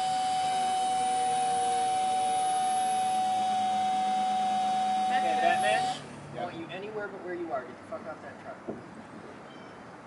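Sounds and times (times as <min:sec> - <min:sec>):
electric motor whine: 0:00.0 - 0:06.1.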